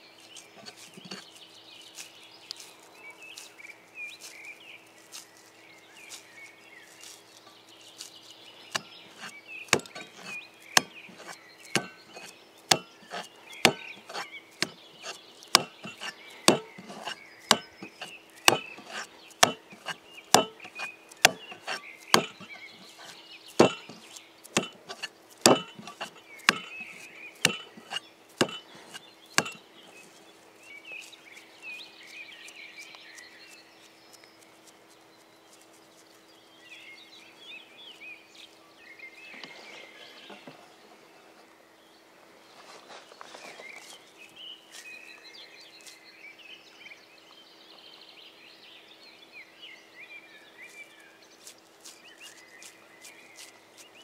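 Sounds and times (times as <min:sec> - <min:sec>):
birds chirping: 0:00.0 - 0:54.0
axe chopping wood: 0:08.7 - 0:29.6.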